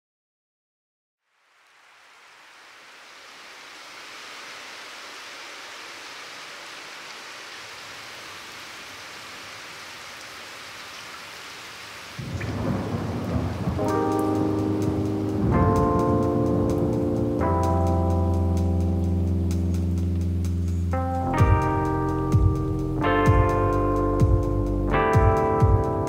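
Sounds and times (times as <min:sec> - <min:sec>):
rain hissing: 0:01.2 - 0:25.6
music: 0:13.8 - 0:26.0.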